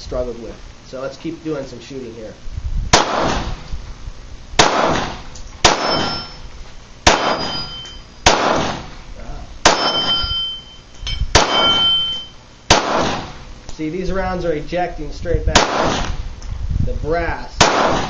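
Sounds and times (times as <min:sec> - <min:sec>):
pistol shots: 0:02.9 - 0:03.6, 0:04.6 - 0:06.4, 0:07.0 - 0:09.0, 0:09.6 - 0:10.2, 0:11.3 - 0:12.0, 0:12.7 - 0:13.4, 0:15.5 - 0:16.2, 0:17.6 - 0:18.0
metallic ring of steel target: 0:04.7 - 0:06.5, 0:07.1 - 0:09.0, 0:09.6 - 0:13.4.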